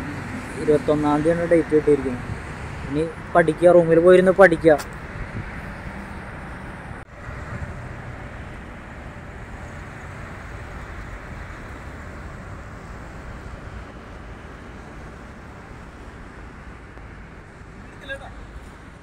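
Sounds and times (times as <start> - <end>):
low traffic rumble: 0.0 - 19.0
wind on microphone: 2.0 - 3.3, 4.8 - 7.8.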